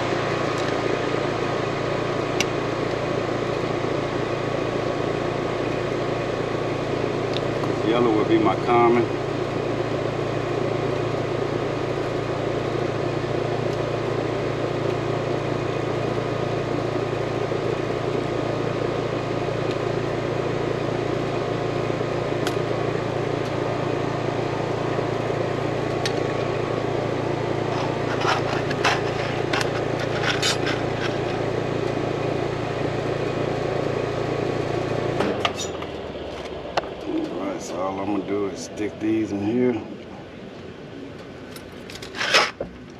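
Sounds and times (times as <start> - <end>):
machine humming: 0.0 - 42.9
hand tools clicking: 27.8 - 31.4, 41.9 - 42.6.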